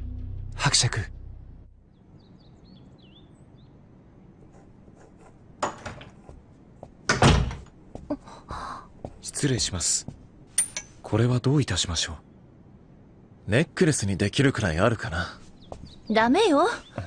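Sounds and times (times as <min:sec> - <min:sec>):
door opening thud: 0:07.1 - 0:07.7.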